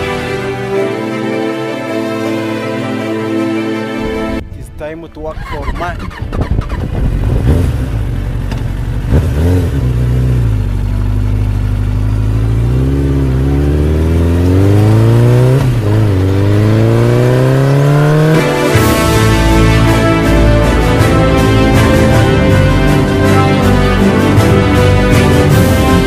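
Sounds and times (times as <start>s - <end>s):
engine accelerating through gears: 5.4s - 19.0s.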